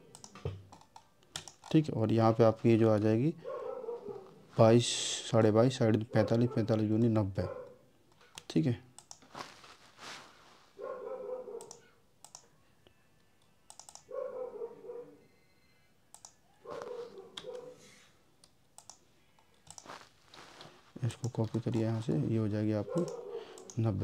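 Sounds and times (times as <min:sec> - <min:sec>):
keyboard typing: 0:00.0 - 0:01.8, 0:08.1 - 0:09.6, 0:11.6 - 0:12.5, 0:13.7 - 0:14.1, 0:16.1 - 0:17.7, 0:18.4 - 0:20.1, 0:21.0 - 0:23.9
mouse clicks: 0:11.6 - 0:12.5, 0:13.4 - 0:14.1, 0:16.1 - 0:17.7, 0:18.4 - 0:20.0.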